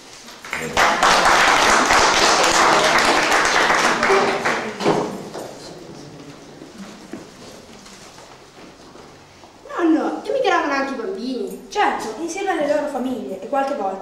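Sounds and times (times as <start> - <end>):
small audience clapping: 0.0 - 8.5.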